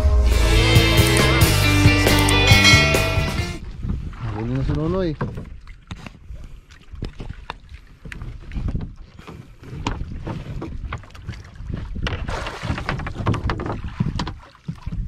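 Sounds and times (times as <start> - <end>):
wind buffeting microphone: 3.4 - 15.0
knocks and clatter on wooden boat: 3.7 - 6.2, 7.0 - 15.0.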